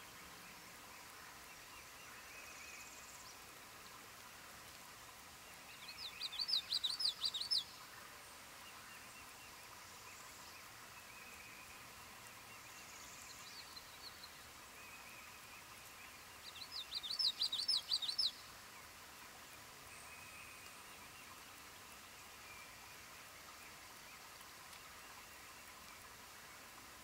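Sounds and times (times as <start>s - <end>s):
faint distant birdsong: 0.0s - 27.0s
songbird singing high notes: 16.5s - 18.4s.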